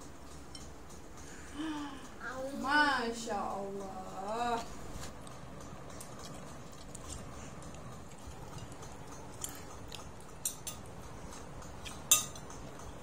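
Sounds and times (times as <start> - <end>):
spoons clinking on ceramic plates: 8.5 - 10.9, 11.8 - 12.6.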